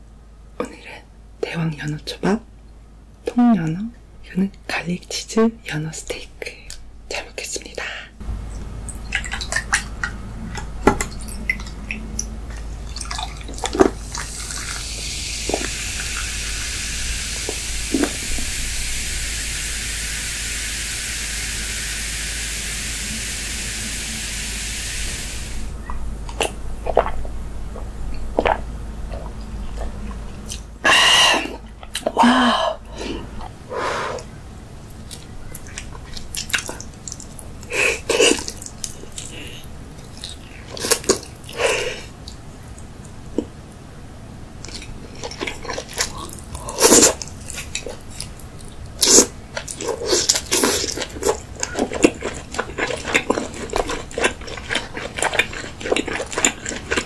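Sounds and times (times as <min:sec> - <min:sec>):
mouth and eating sounds: 0:08.6 - 0:18.7, 0:25.8 - 0:34.3, 0:34.9 - 0:43.6, 0:44.6 - 0:57.0
cola fizzing in a jug: 0:12.9 - 0:25.6.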